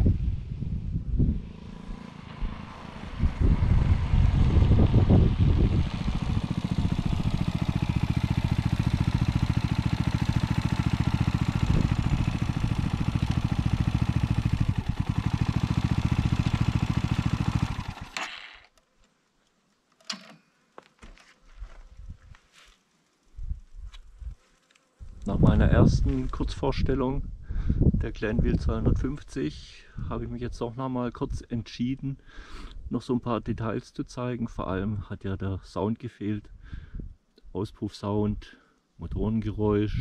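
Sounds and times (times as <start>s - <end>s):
motorcycle engine: 0.0s - 18.8s.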